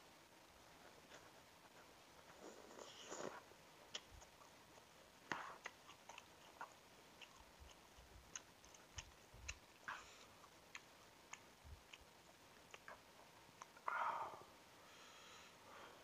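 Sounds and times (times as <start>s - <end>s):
man chewing noodles: 2.2s - 13.9s.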